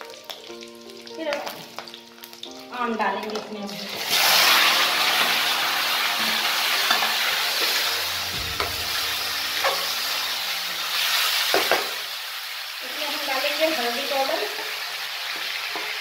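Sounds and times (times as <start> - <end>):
food sizzling in hot oil: 0.0 - 16.0.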